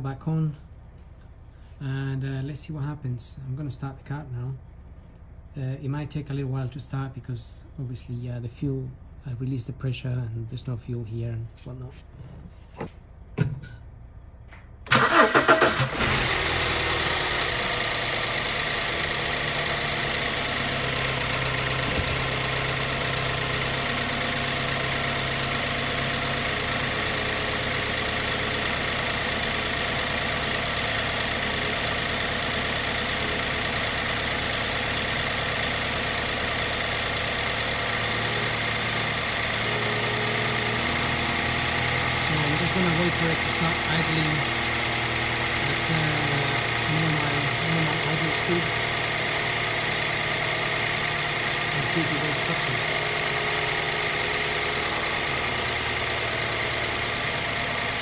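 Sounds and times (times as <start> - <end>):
car engine starting and idling: 14.4 - 58.0.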